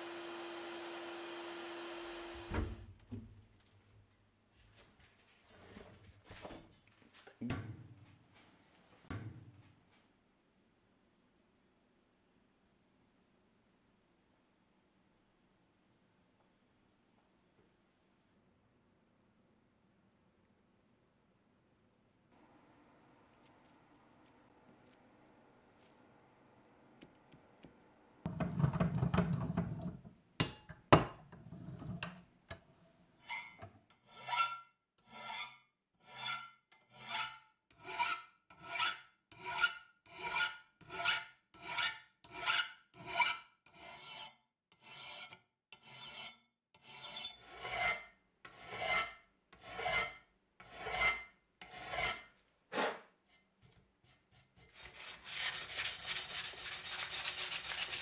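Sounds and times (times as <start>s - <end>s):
hand file rasping on metal: 33.2s - 52.3s, 54.1s - 58.0s.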